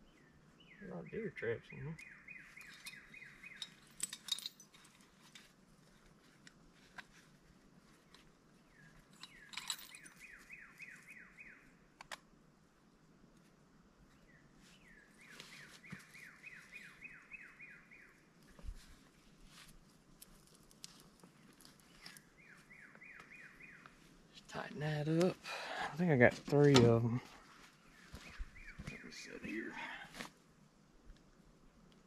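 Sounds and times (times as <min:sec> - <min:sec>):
scattered clicks: 0:12.0 - 0:12.2.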